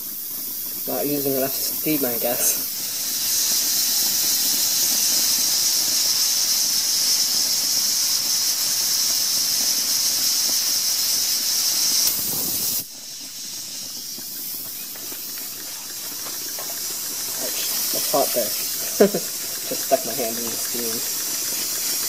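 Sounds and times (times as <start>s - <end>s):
fainter steam hiss: 0.0s - 22.0s
steam hissing from relief valve: 0.0s - 22.0s.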